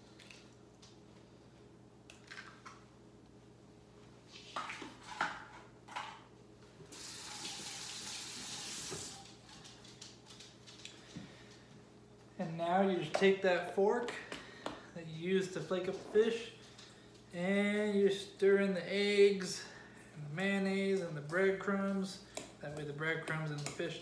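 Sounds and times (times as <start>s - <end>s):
sink tap running: 6.9s - 9.2s.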